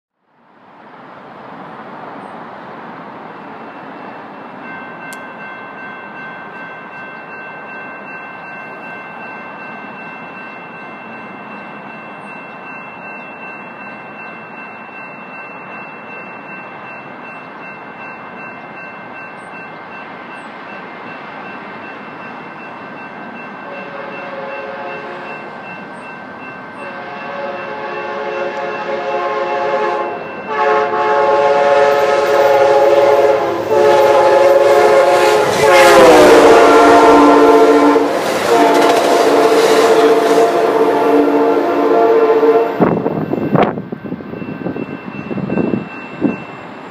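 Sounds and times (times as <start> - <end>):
train horn blasts: 23.6 - 25.5, 26.8 - 43.7.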